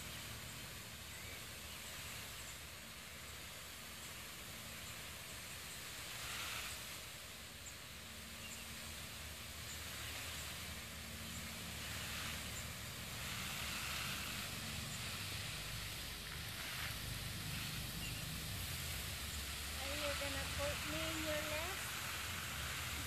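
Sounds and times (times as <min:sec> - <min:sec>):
hose nozzle spray hissing: 0:05.0 - 0:23.0.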